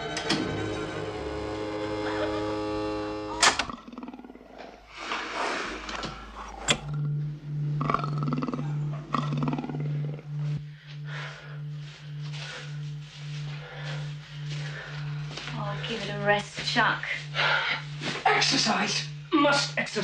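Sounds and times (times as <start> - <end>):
tense orchestral chords: 0.0 - 3.6, 6.8 - 12.0
low pulsing hum: 0.0 - 4.9, 5.7 - 20.0
panther snarling and growling: 7.8 - 10.3.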